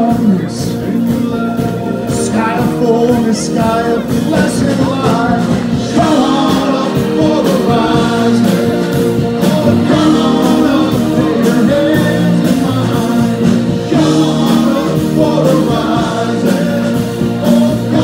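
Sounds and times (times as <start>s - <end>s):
drum beat: 0.0s - 18.0s
live rock band: 0.0s - 18.0s
person singing: 0.0s - 18.0s.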